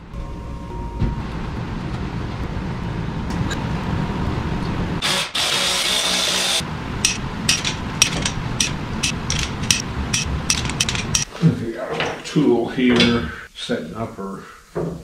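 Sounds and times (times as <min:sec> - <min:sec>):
low shop rumble: 0:00.0 - 0:05.1, 0:06.5 - 0:11.3
wrench clicking: 0:07.0 - 0:11.3.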